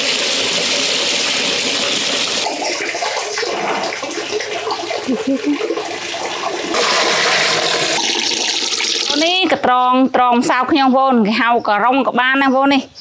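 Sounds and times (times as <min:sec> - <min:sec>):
water pouring: 0:00.0 - 0:09.5.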